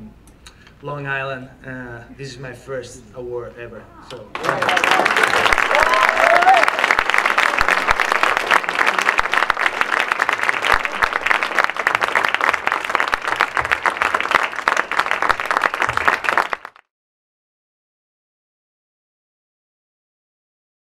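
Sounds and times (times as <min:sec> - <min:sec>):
audience applauding: 0:04.3 - 0:16.9.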